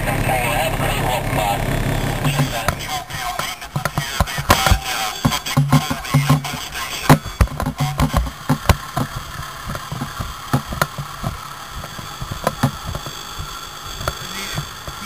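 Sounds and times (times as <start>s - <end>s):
low pulsing sound: 0.0s - 3.1s
diesel fire engine idling: 0.0s - 15.0s
sharp clicks: 2.1s - 15.0s.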